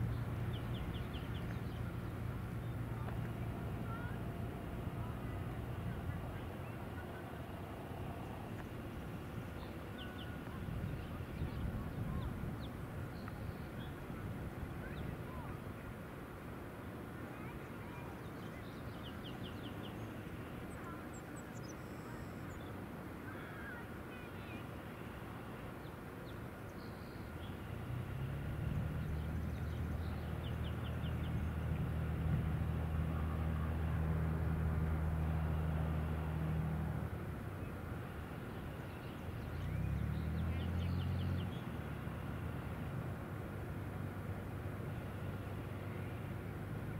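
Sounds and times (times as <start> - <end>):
small birds chirping: 0.0 - 4.2
plane engine and propeller: 0.0 - 46.9.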